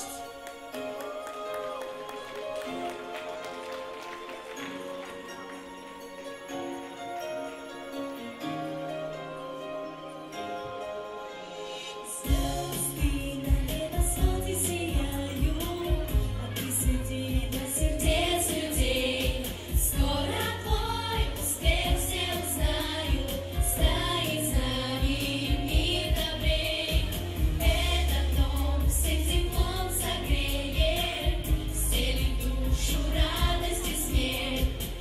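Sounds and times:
pop backing track: 10.6 - 35.0
group singing pop song: 10.8 - 35.0.

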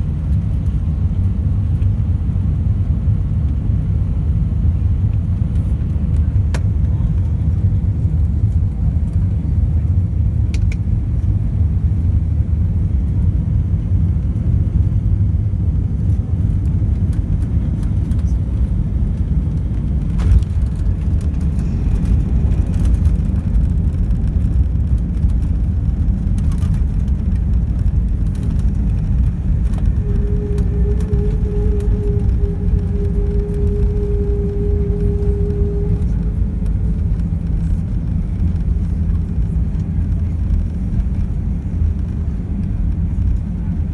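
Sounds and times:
low rumble of jet engines: 0.0 - 43.9
steady whine: 0.0 - 43.9
wheels rolling on runway: 16.7 - 43.9.

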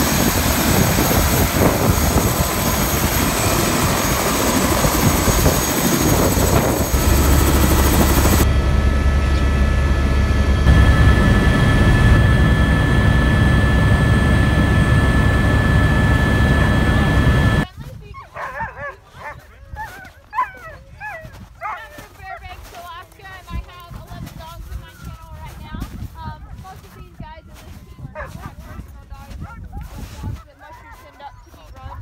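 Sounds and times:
helicopter running: 0.0 - 17.7.

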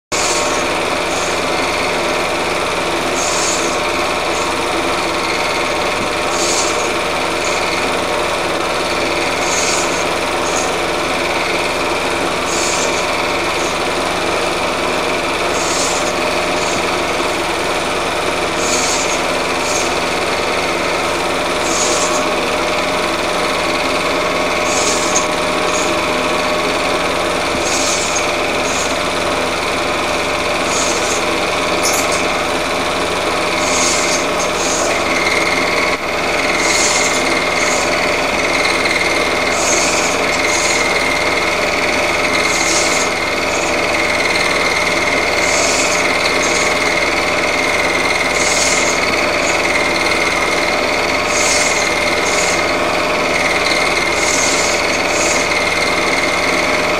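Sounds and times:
film projector whirring: 0.0 - 56.9.

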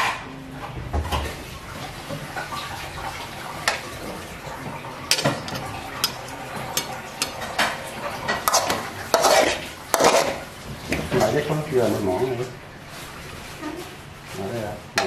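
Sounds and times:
utensils clinking against dishes: 5.0 - 11.5.

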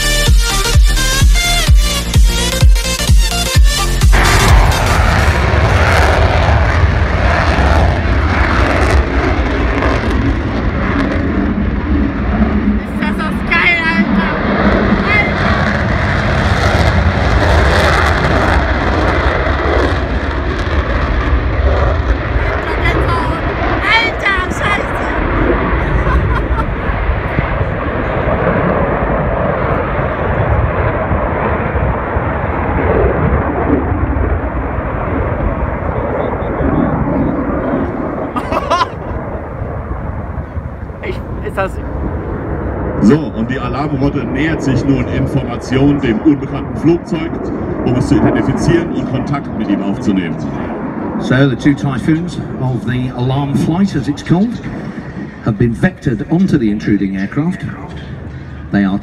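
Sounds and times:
jet engine rumble: 3.8 - 59.0.

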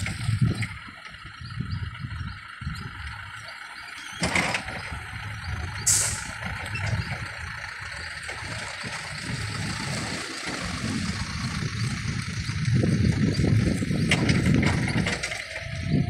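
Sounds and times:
forklift engine rumbling: 0.0 - 16.0
clatter: 4.0 - 4.9, 10.5 - 15.5
short sharp hiss: 5.9 - 6.3.

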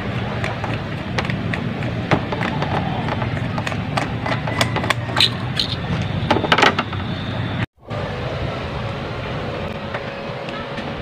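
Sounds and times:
steady low rumble: 6.9 - 11.0.

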